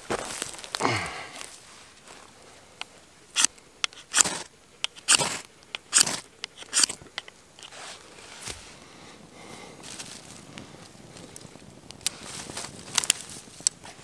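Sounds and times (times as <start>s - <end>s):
metal rasping on ferrocerium rod: 3.4s - 7.0s
light scrapes: 7.6s - 8.8s.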